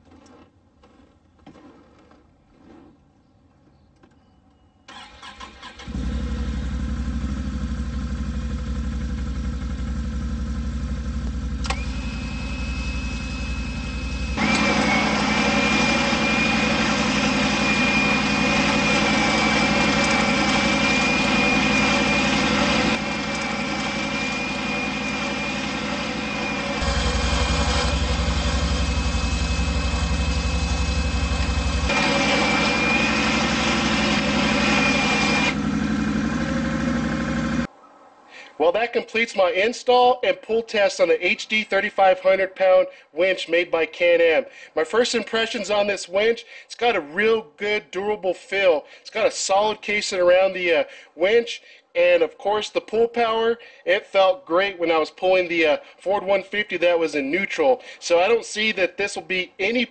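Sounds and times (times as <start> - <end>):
atv engine starting and running: 4.9 - 37.7
winch motor whine: 9.0 - 37.7
winch switch click: 11.2 - 12.0.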